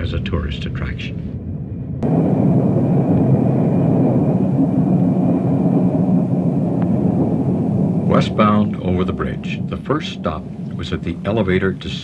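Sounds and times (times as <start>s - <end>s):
trolley wheels rumbling on rail: 2.0s - 12.0s.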